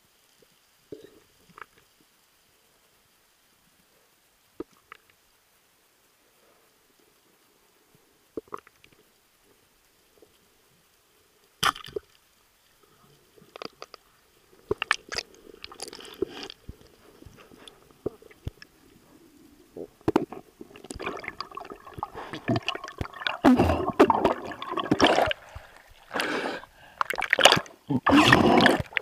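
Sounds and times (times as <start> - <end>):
water bubbling and sloshing: 13.2 - 29.0
muffled underwater knocks and clicks: 19.9 - 21.3.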